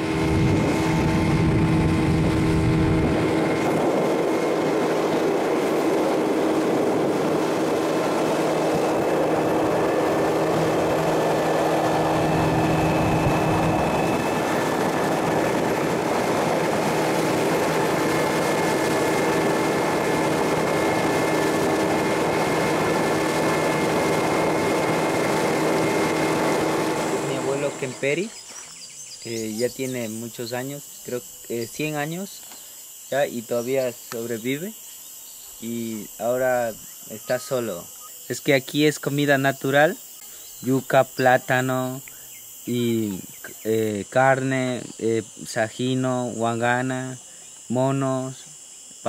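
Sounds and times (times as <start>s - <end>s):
motor boat engine drone: 0.0s - 32.2s
wind: 0.0s - 49.0s.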